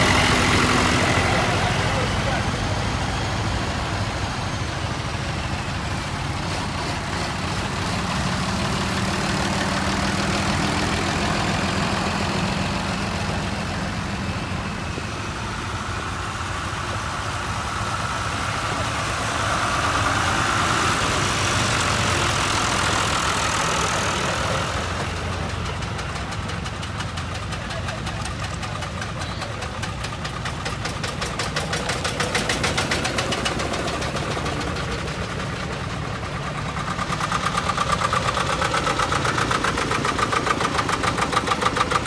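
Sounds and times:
tractor engines running at low speed: 0.0s - 42.0s.

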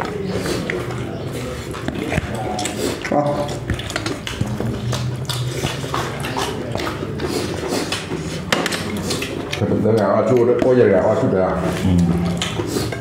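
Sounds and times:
fingers mixing rice: 0.0s - 13.0s
dishware clicks and clatters: 12.3s - 13.0s.

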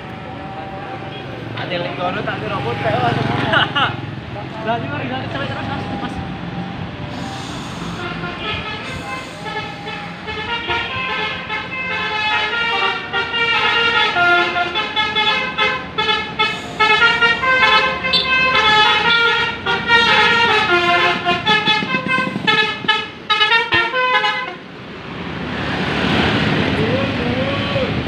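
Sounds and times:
musical air horn playing tune: 7.1s - 24.6s.

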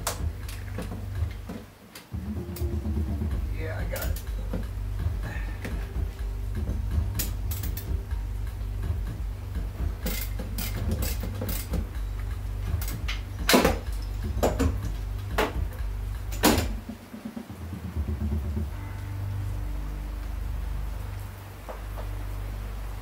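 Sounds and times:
steady low hum: 0.0s - 23.0s
clicks and knocks of handled parts: 6.6s - 8.0s, 10.0s - 16.8s.

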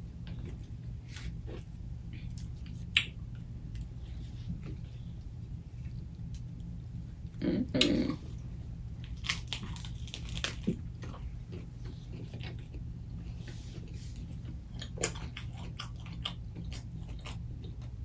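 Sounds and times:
steady low hum: 0.0s - 18.0s
lettuce crunching while chewing: 9.0s - 12.9s, 13.8s - 18.0s.

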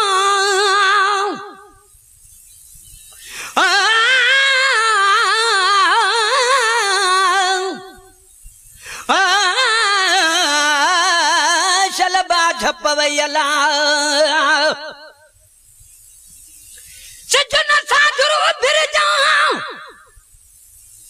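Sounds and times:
person singing with vibrato: 0.0s - 1.9s, 3.2s - 8.2s, 8.8s - 15.4s, 16.9s - 20.2s.

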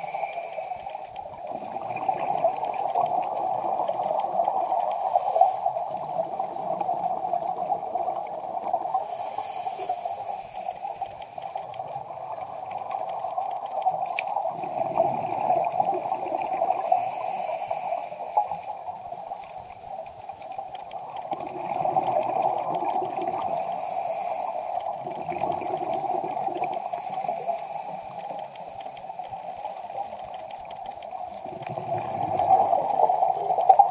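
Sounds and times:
underwater rush: 0.0s - 33.9s
diver's exhaled bubbles gurgling: 1.2s - 19.2s, 20.0s - 33.9s.

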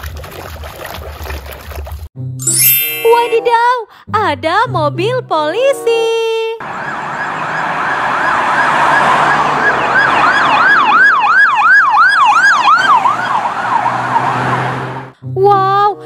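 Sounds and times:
police siren yelping: 6.6s - 15.1s
road noise: 6.6s - 15.2s.

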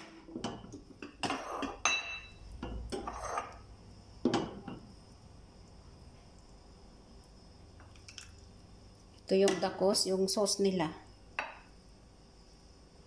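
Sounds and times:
metal ladle scraping saucepan: 1.0s - 1.9s, 2.8s - 3.6s.

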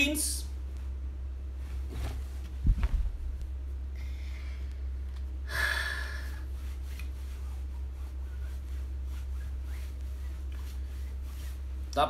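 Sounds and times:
steady low hum: 0.0s - 12.0s
shirt rustling under iron: 1.5s - 3.7s.

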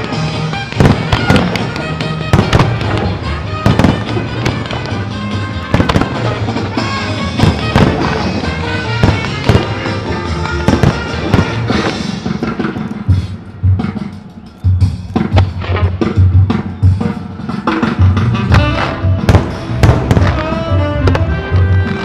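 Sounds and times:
fireworks bangs: 0.0s - 13.1s, 18.4s - 22.0s
music: 0.0s - 22.0s.

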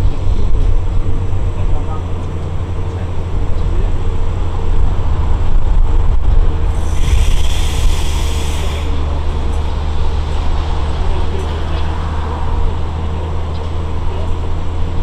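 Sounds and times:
electric train rumbling past: 0.0s - 15.0s
hiss: 6.7s - 9.0s.

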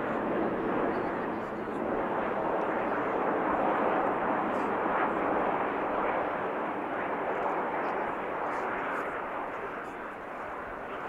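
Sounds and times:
jet engine noise: 0.0s - 11.0s.

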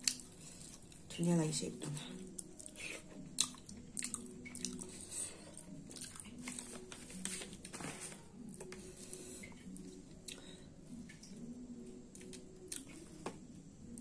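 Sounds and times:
chewing: 0.0s - 1.1s, 2.2s - 7.6s, 12.1s - 13.2s.

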